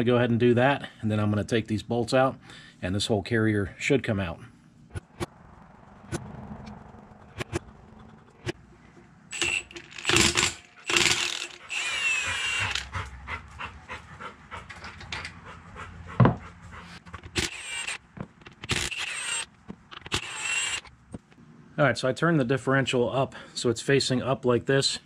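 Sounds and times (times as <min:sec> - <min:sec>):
ratchet clicking: 0:09.3 - 0:12.9, 0:17.3 - 0:20.9
short mechanical bursts: 0:09.3 - 0:12.9, 0:17.3 - 0:20.9.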